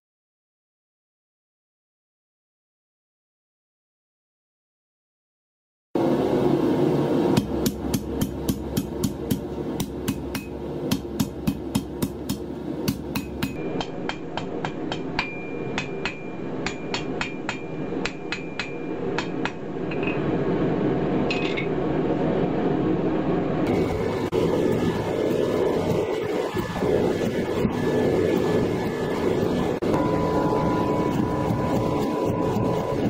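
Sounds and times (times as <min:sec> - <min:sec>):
steady background rush: 0:06.0 - 0:33.0
hammer striking anvil: 0:07.4 - 0:20.2.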